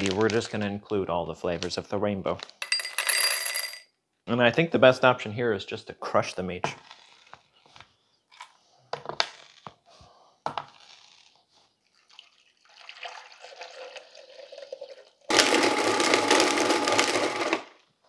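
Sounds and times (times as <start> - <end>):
candy shells cracking: 0.0 - 0.7
blender running: 15.3 - 17.8.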